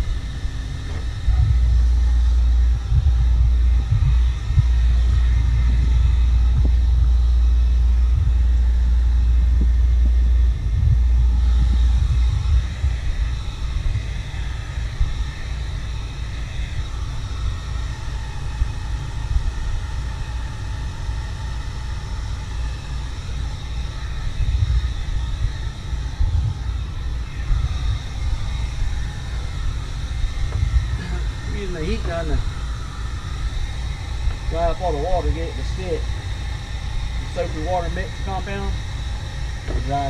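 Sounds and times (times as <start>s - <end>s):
wind rumbling on microphone: 0.0s - 40.0s
heat gun whining: 28.2s - 40.0s.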